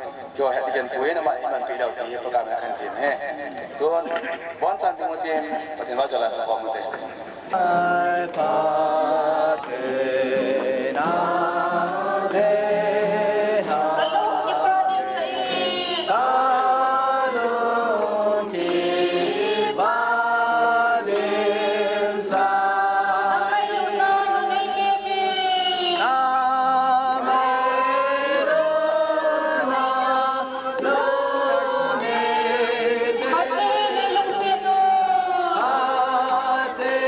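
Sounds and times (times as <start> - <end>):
women singing together: 7.5 - 37.0.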